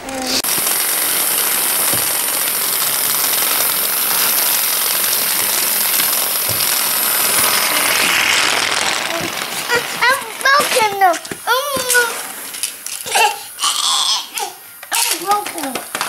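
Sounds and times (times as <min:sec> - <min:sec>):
toy train running on track: 0:00.0 - 0:16.0.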